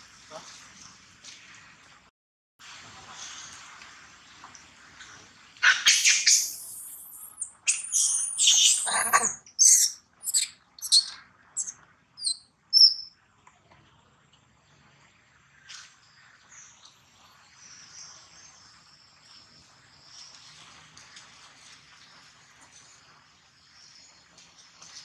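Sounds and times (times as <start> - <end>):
monkey screaming: 5.6 - 13.0.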